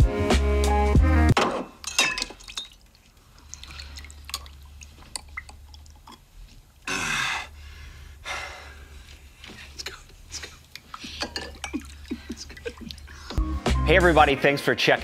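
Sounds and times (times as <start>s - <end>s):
glass clinking: 1.5s - 2.9s, 11.0s - 12.9s
liquid dripping: 1.8s - 6.9s, 9.1s - 13.5s.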